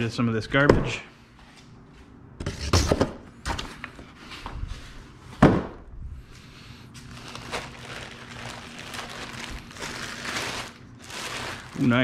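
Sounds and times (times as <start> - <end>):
plastic bag crinkling: 7.1 - 12.0.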